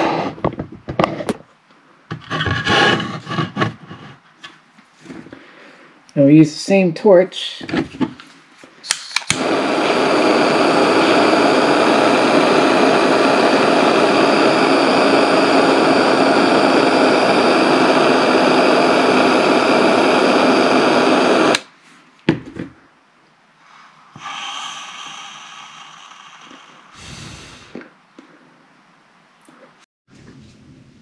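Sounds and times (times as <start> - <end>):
butane torch hissing: 0.0 - 0.4, 8.9 - 21.7, 23.6 - 27.9
sharp click: 8.9 - 9.4.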